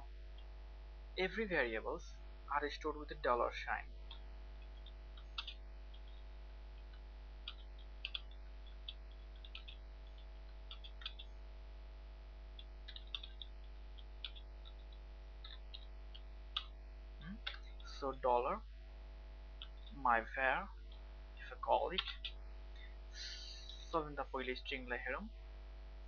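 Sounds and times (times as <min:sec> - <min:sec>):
faint electrical hum: 0:00.0 - 0:26.0
keyboard keys clicking: 0:04.8 - 0:06.2, 0:06.9 - 0:11.3, 0:12.6 - 0:16.7, 0:22.0 - 0:22.4.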